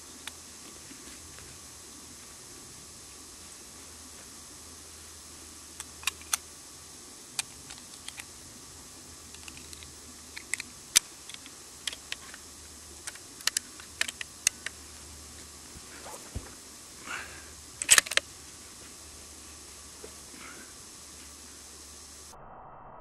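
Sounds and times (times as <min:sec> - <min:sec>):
rifle loading clicks: 0:05.8 - 0:06.4, 0:13.0 - 0:14.8, 0:17.8 - 0:18.2.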